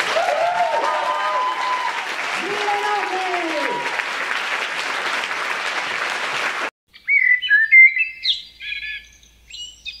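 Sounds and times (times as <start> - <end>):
audience applause: 0.0 - 6.7
songbird singing whistled notes: 6.9 - 10.0.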